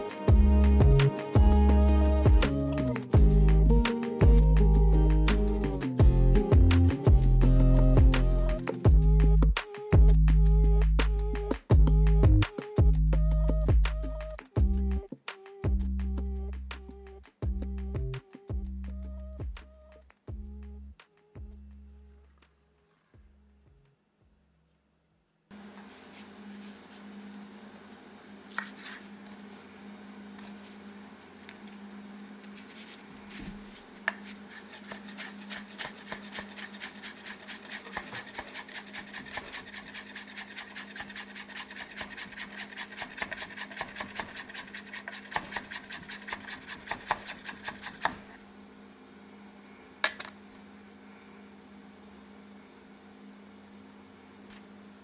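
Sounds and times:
knife chopping on wooden board: 45.2s - 48.2s.

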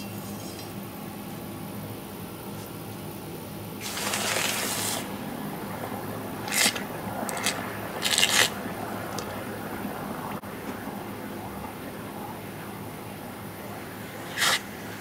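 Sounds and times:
hot metal hissing in water: 3.8s - 5.1s.

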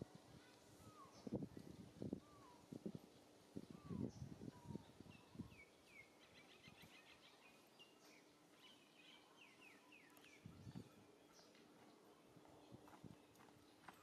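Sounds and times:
bird chirping: 3.7s - 12.2s.

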